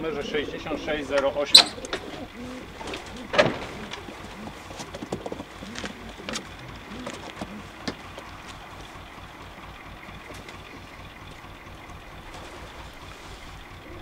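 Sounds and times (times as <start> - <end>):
low background rumble: 0.0 - 14.0
knocks and rustles of handling: 2.8 - 8.6.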